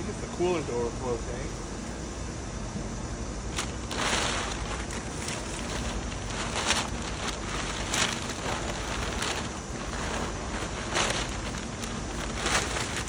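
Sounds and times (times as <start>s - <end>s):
packing paper rustling: 3.5s - 13.0s.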